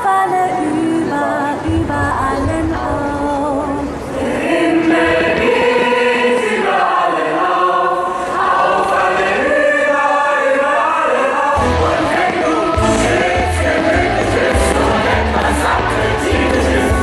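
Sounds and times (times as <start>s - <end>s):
choir singing: 3.5s - 17.0s.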